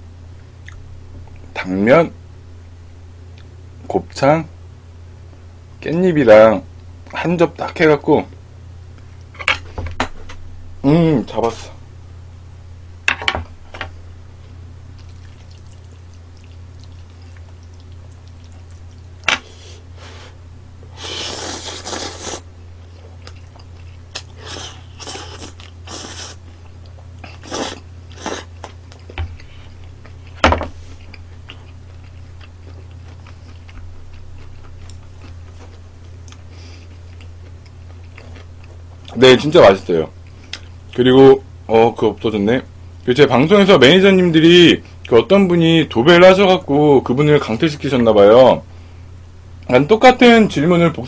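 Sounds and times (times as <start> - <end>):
steady low hum: 0.0 - 51.0
chewing: 14.9 - 19.2, 21.2 - 39.2
slurping noodles: 21.0 - 22.4, 24.3 - 26.4, 27.2 - 28.5.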